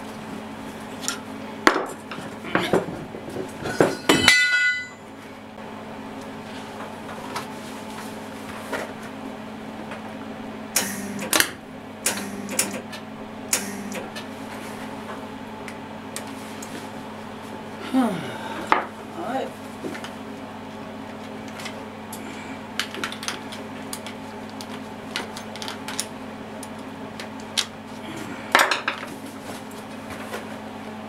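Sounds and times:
workshop hum: 0:00.0 - 0:31.0
steel parts clanking: 0:03.6 - 0:05.0.

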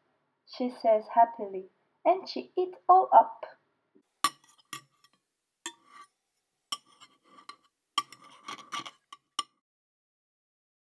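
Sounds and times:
spoon clinking against a bowl: 0:04.2 - 0:06.1, 0:06.7 - 0:09.6.

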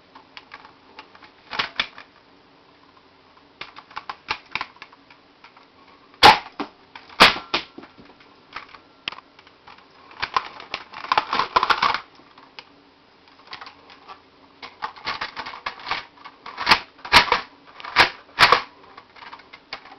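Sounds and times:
plastic toy blaster rattling: 0:00.4 - 0:02.1, 0:09.7 - 0:12.1, 0:13.5 - 0:19.9.

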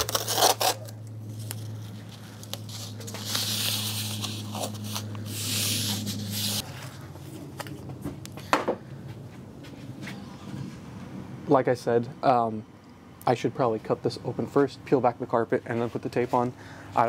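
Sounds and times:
tape ripping off roll: 0:00.0 - 0:01.6
steady low hum: 0:00.0 - 0:17.0.

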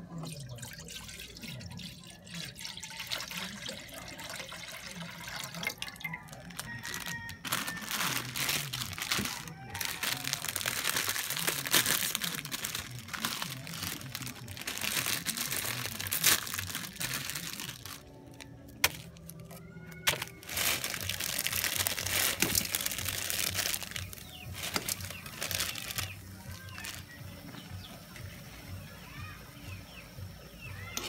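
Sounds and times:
plastic wrappers crinkling and tearing: 0:05.2 - 0:27.6.

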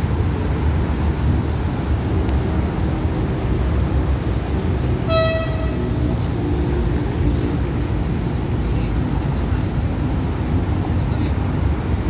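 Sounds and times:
train rumble: 0:00.0 - 0:12.0
train horn toot: 0:05.0 - 0:06.0.

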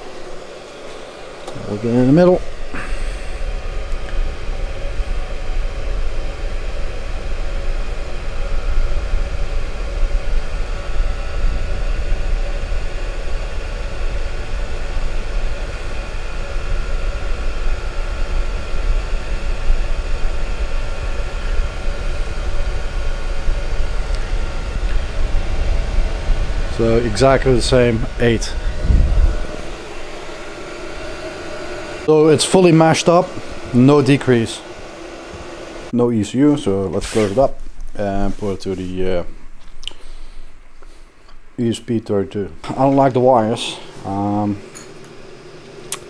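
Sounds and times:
air heater blower running: 0:00.0 - 0:46.0.

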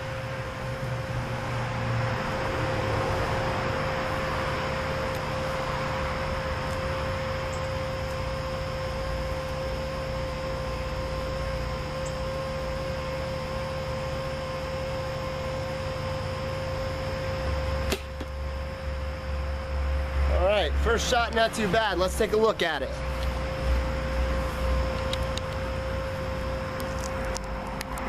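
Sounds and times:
steady hum with high whine: 0:00.0 - 0:28.0
bow string snap: 0:17.9 - 0:18.3.

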